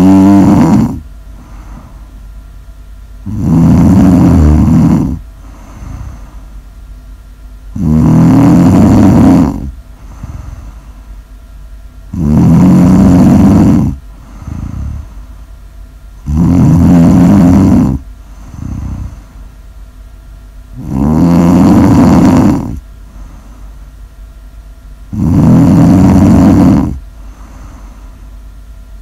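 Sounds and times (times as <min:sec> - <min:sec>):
person snoring: 0:00.0 - 0:02.1, 0:03.2 - 0:06.4, 0:07.7 - 0:11.0, 0:12.1 - 0:15.3, 0:16.2 - 0:19.4, 0:20.7 - 0:23.7, 0:25.1 - 0:28.2
soft breaths: 0:00.0 - 0:02.3, 0:03.6 - 0:06.7, 0:08.4 - 0:11.3, 0:12.4 - 0:15.6, 0:16.6 - 0:19.6, 0:21.5 - 0:24.0, 0:25.4 - 0:28.4.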